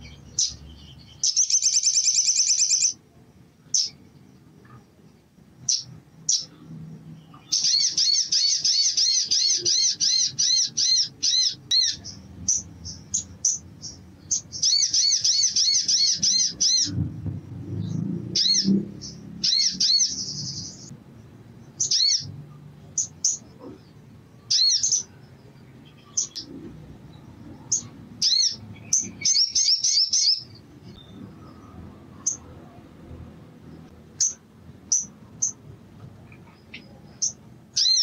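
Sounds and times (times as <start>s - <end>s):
buzzy bird trill: 0.0s - 3.0s, 5.6s - 6.6s, 7.2s - 17.0s, 17.8s - 20.9s, 21.7s - 22.4s, 27.2s - 31.2s
sunbird high chirps: 0.0s - 17.2s, 17.8s - 32.5s, 33.8s - 35.7s, 36.3s - 38.0s.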